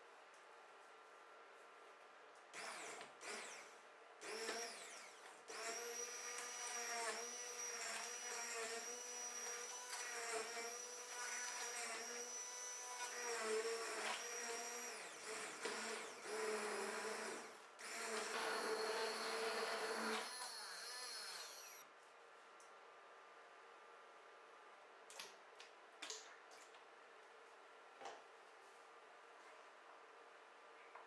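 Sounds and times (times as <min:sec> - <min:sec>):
stick blender motor whining: 0:02.6 - 0:21.8.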